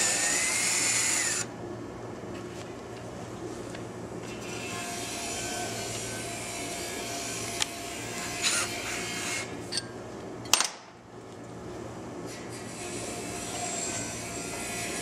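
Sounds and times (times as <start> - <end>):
cordless drill whirring: 0.0 - 1.5.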